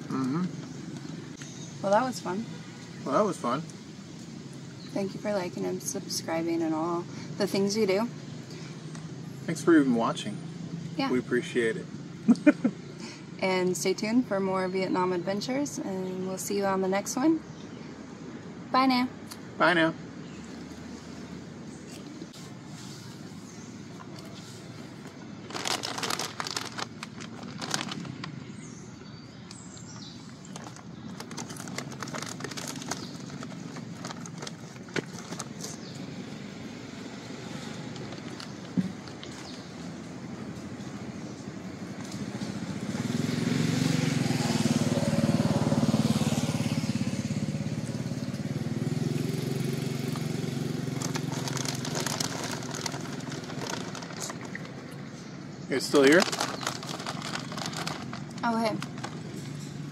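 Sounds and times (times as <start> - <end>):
motorbike passing by: 0.0 - 14.2, 29.6 - 59.9
plastic snack bag crinkling: 25.1 - 28.4, 30.3 - 35.8, 50.9 - 54.8, 55.8 - 59.4.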